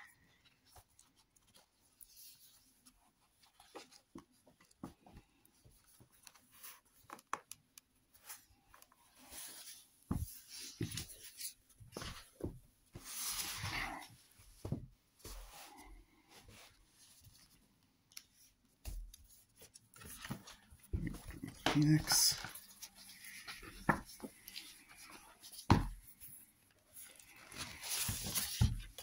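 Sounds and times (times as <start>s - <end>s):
book pages turning: 16.7s - 26.2s, 26.9s - 29.0s.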